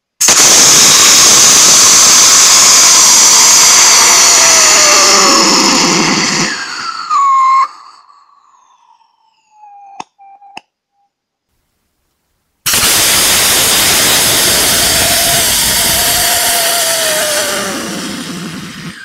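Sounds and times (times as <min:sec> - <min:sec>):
rocket engine roaring: 0:00.2 - 0:09.7, 0:12.7 - 0:19.0
faint whistle falling in pitch: 0:06.5 - 0:11.2.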